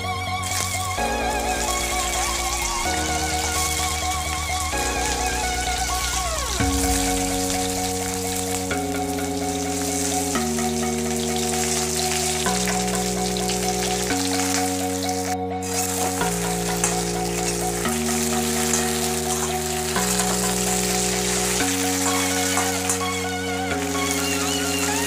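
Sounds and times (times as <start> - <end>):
electronic background music: 0.0 - 25.0
okra sizzling in hot oil: 0.0 - 25.0
spatula stirring: 8.8 - 24.9.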